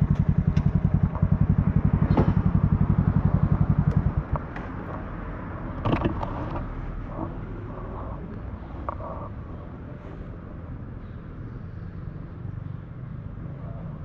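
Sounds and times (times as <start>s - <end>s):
motorcycle engine idling: 0.0s - 6.3s.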